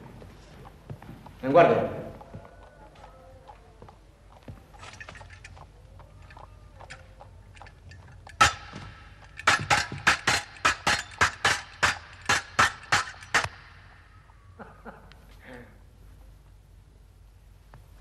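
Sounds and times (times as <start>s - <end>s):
fencing swords clashing: 7.6s - 13.9s.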